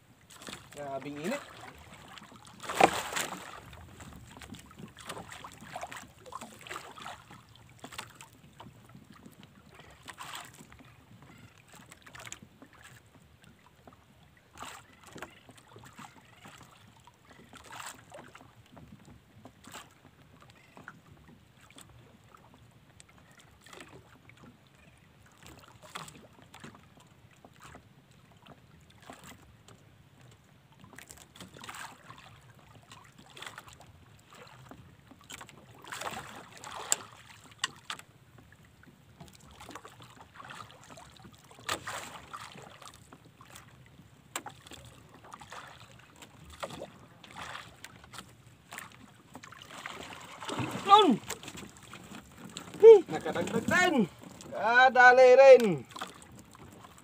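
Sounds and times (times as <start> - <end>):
faint wind: 0.0 - 57.0
water lapping against canoe hull: 0.0 - 57.0
short splashes: 0.3 - 8.2, 33.2 - 38.0, 39.3 - 43.7, 44.3 - 54.6
light knocks on canoe: 1.7 - 9.4, 44.3 - 44.7.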